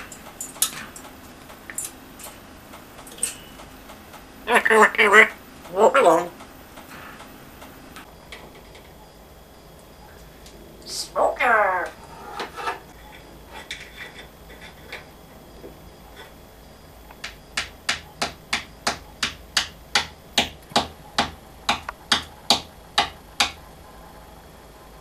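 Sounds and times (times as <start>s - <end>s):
parrot tapping beak on sill: 17.2s - 23.6s.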